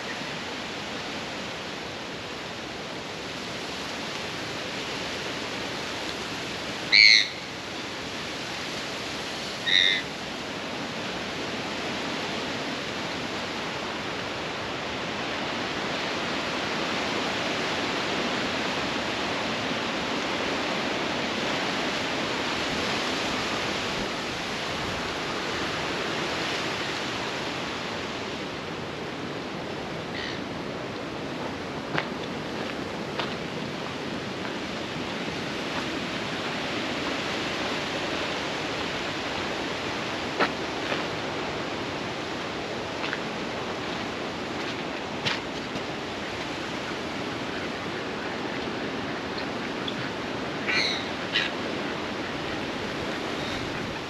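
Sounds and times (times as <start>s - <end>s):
bird high call: 6.9s - 7.5s, 9.6s - 10.1s, 50.6s - 51.6s.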